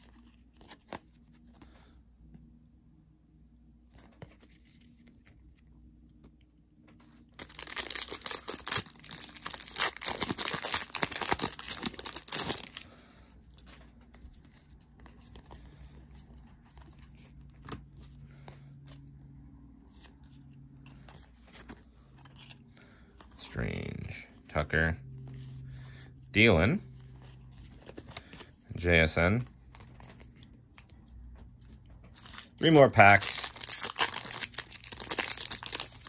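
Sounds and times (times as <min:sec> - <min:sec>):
faint card handling: 0:00.0 - 0:02.6, 0:03.8 - 0:24.4, 0:26.7 - 0:36.0
foil wrapper tearing and crinkling: 0:07.4 - 0:12.8, 0:32.2 - 0:36.0.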